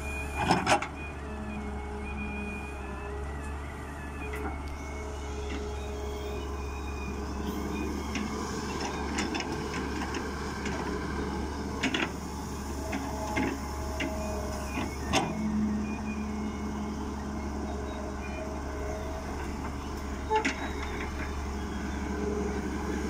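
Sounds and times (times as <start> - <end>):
excavator diesel engine running: 0.0 - 23.0
hydraulic whine: 0.0 - 23.0
excavator bucket clanking: 20.3 - 21.3.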